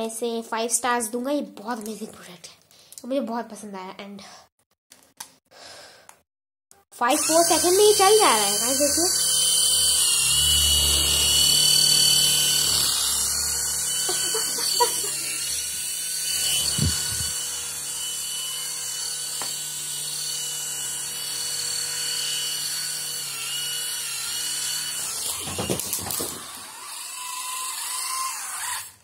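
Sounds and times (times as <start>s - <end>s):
tiny propellers whining: 7.1s - 29.0s.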